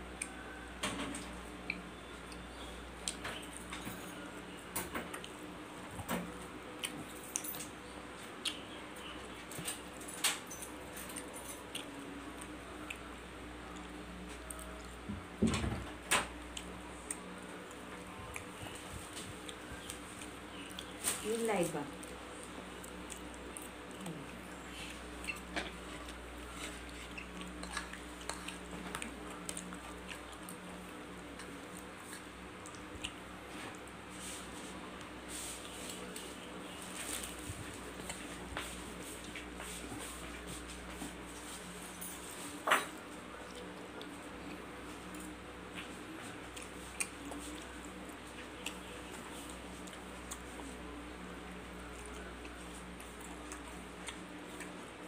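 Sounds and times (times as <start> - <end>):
low steady hum: 0.0 - 55.0
mouth sounds of eating: 16.5 - 33.8.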